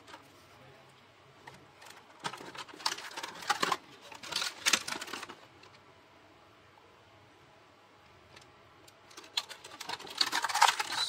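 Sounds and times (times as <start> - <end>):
plastic packaging crinkling: 1.8 - 5.4, 9.1 - 11.0.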